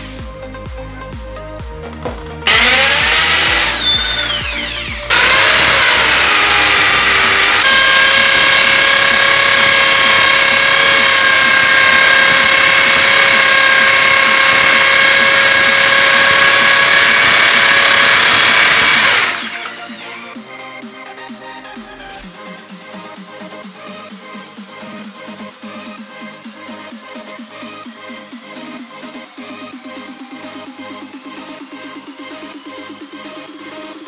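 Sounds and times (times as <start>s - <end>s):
electric drill whining: 1.9s - 20.4s
drill bit grinding into wall: 2.0s - 20.0s.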